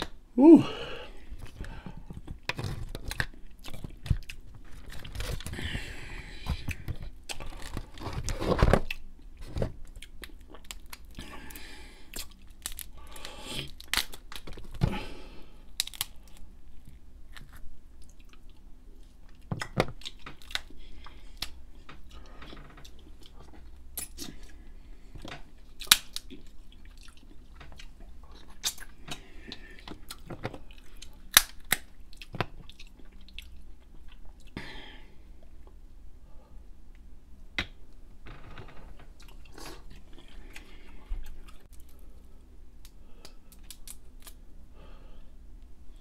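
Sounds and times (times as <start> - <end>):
crab shells cracking: 12.2 - 14.8, 15.8 - 16.5, 25.8 - 26.4, 31.0 - 32.7, 42.8 - 44.4
wet chewing and mouth smacks: 25.8 - 29.2.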